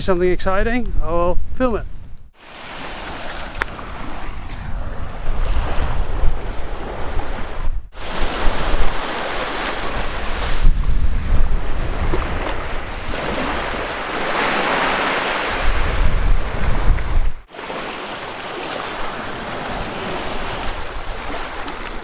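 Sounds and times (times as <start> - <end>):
small waves breaking: 2.4 - 10.7, 11.6 - 15.9, 17.4 - 22.0
wind buffeting microphone: 3.2 - 17.5.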